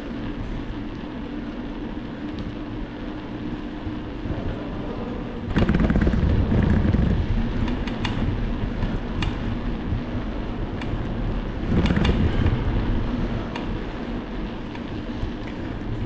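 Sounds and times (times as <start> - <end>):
wind buffeting microphone: 2.8 - 16.0
clicks and rattles: 11.7 - 12.5.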